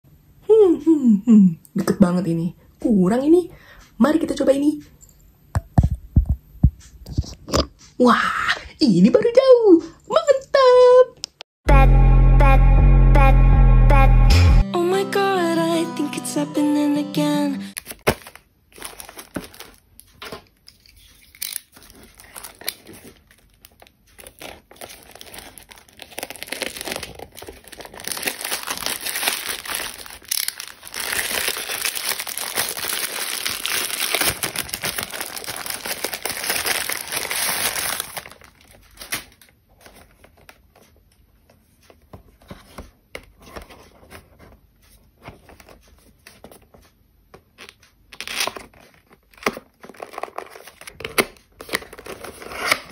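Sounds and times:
plastic bag tearing and rustling: 17.8s - 40.6s, 47.6s - 52.9s.

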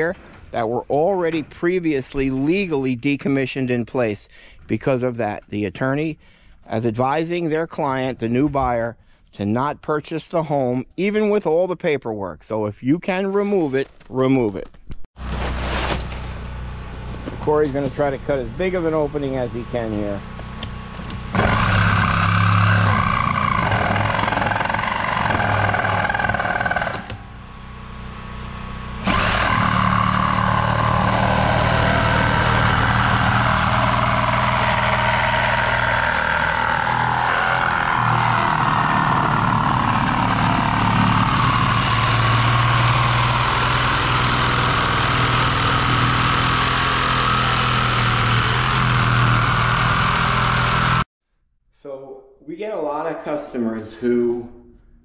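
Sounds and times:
reciprocating saw cutting steel: 17.5s - 51.1s.

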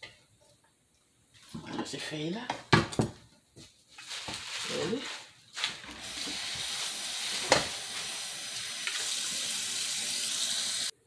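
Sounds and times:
tap running into sink: 6.0s - 6.7s, 7.4s - 7.8s.

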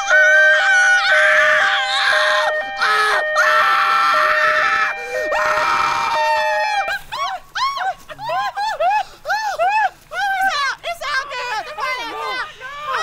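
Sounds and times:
hi-lo siren: 0.0s - 7.1s
person screaming: 1.6s - 7.3s.

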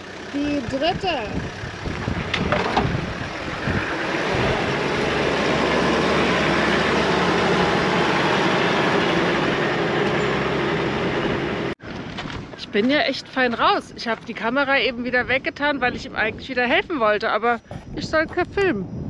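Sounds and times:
engine running hard under load: 0.0s - 11.8s.

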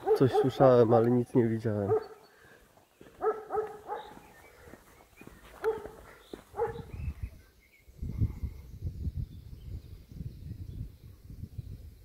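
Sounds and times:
dog barking: 0.0s - 1.0s, 1.8s - 2.2s, 3.2s - 4.2s, 5.6s - 7.0s.

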